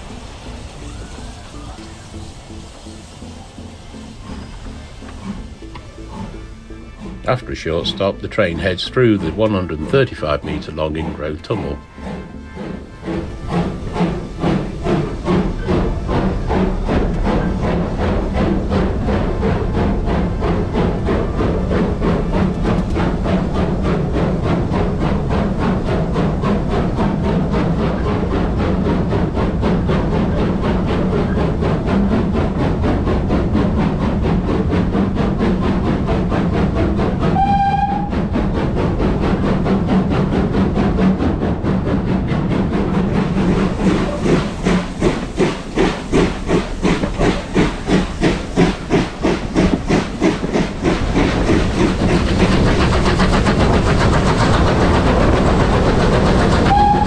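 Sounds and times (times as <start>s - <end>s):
steam train rumble: 0.0s - 57.0s
locomotive whistle: 0.2s - 8.2s, 37.4s - 38.2s, 56.6s - 57.0s.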